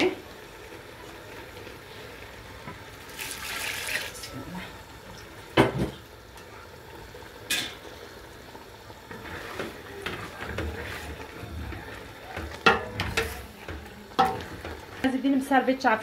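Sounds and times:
spoon stirring leaves in liquid: 8.5s - 15.2s
spoon knocking metal pot: 12.4s - 14.4s.

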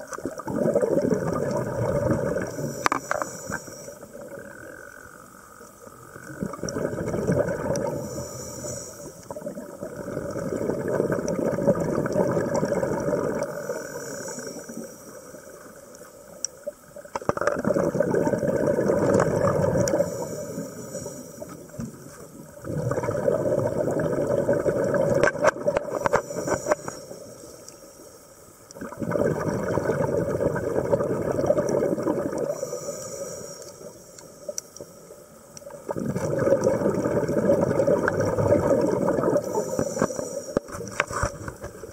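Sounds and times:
exhaled bubbles underwater: 0.0s - 5.0s, 6.0s - 16.0s, 16.6s - 26.8s, 28.7s - 33.0s, 35.5s - 41.9s
faint hiss of inhalation: 2.5s - 4.3s, 7.9s - 9.4s, 13.5s - 16.2s, 19.9s - 22.0s, 25.9s - 28.5s, 32.5s - 35.0s, 39.4s - 41.0s.

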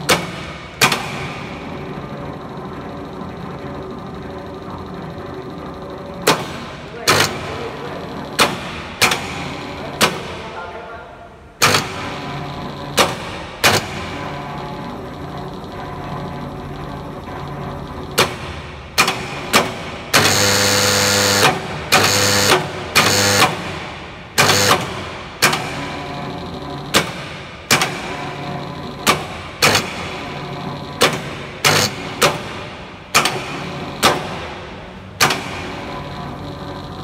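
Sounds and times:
loud electrical buzzing: 20.1s - 25.2s.

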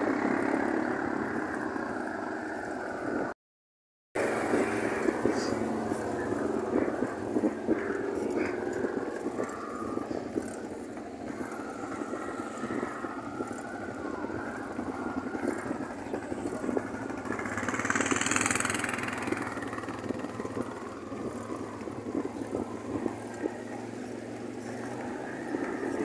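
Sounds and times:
louder passing vehicle: 0.0s - 3.3s, 4.2s - 26.0s
road noise: 0.0s - 3.4s, 4.2s - 26.0s
vehicle engine running at low speed: 0.0s - 3.4s, 4.2s - 26.0s.

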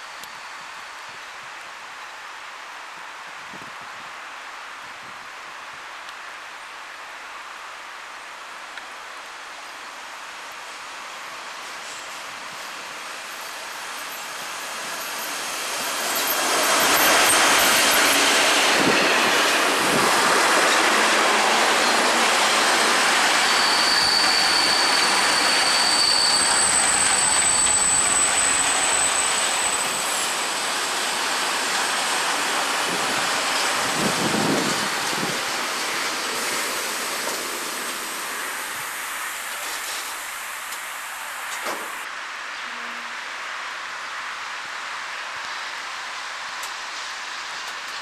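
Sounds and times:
freight train passing: 10.8s - 48.0s
train wheels squealing: 11.8s - 35.0s.

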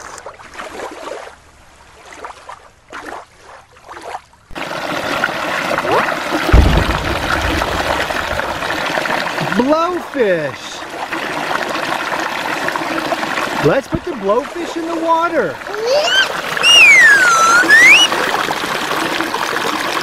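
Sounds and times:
rush of flowing water: 0.0s - 20.0s
stream trickling over stones: 0.0s - 20.0s
low rumble: 6.5s - 8.7s.

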